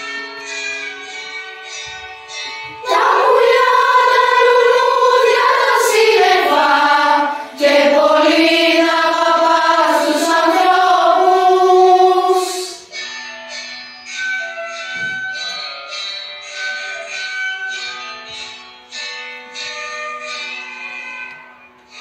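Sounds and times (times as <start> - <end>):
choir singing held notes: 2.8 - 12.9.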